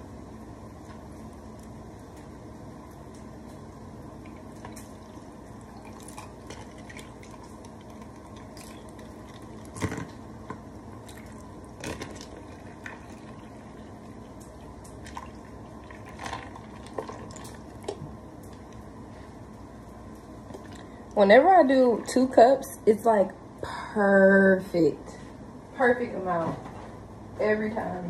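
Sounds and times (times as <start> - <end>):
coffee pouring into cup: 4.2 - 10.2, 11.0 - 18.7.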